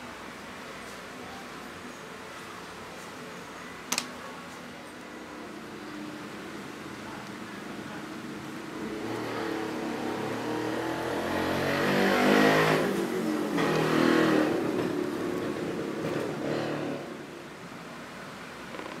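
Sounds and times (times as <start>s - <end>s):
motor vehicle passing by: 8.8s - 17.2s.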